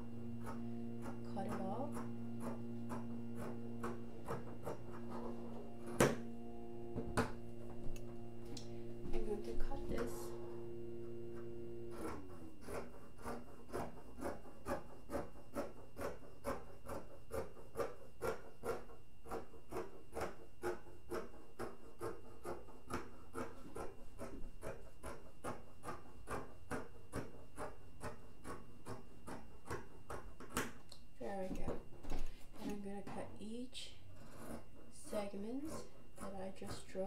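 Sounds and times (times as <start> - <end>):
scissors snipping fabric: 11.9 - 30.8.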